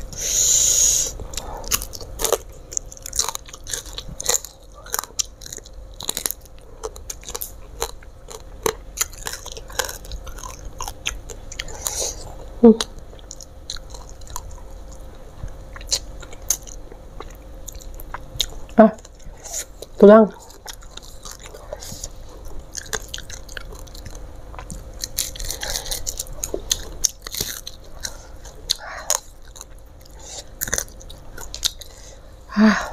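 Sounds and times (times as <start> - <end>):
person chewing: 0.0 - 32.9
small crunches: 20.4 - 32.0.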